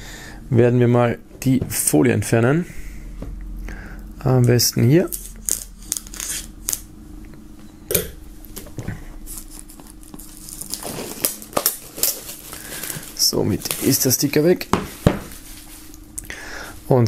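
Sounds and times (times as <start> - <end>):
shrink-wrap being torn: 5.1 - 6.9, 9.3 - 14.0.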